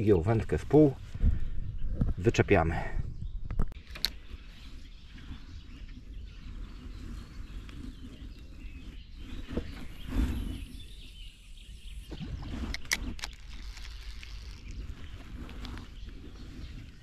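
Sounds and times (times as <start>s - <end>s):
sharp clicks: 3.8s - 4.2s, 12.6s - 14.8s.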